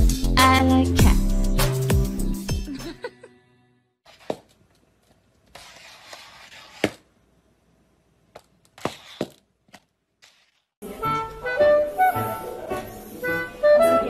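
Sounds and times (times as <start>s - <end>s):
background music: 0.0s - 3.8s, 10.8s - 14.0s.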